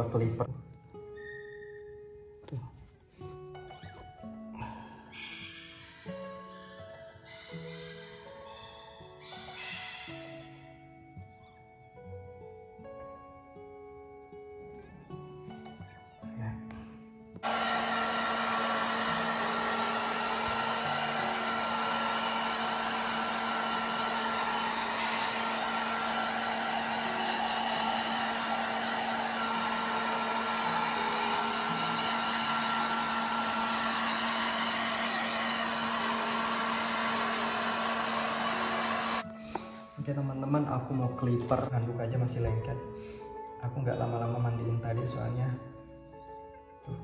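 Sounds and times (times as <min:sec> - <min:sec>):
hair dryer blowing: 0:17.4 - 0:39.8.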